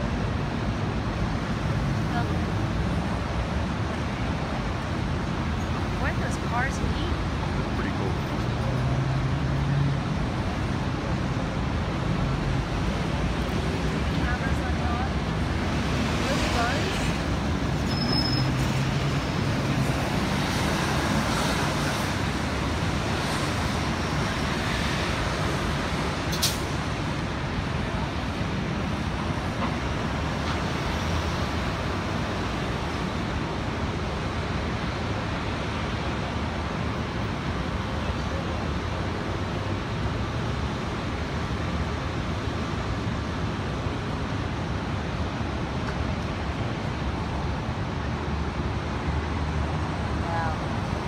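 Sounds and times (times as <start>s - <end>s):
city traffic passing: 0.0s - 51.0s
brief high squeal: 17.9s - 18.6s.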